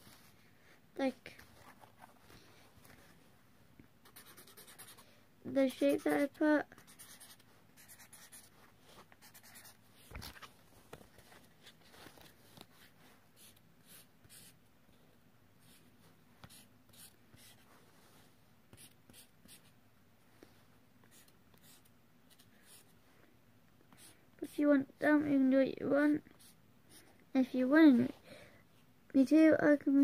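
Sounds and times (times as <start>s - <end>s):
marker drawing on paper: 4.0s - 5.0s, 5.7s - 8.6s, 9.2s - 9.8s, 12.8s - 14.6s, 15.6s - 17.7s, 18.7s - 19.7s, 21.1s - 22.9s, 23.9s - 24.6s, 26.4s - 26.6s.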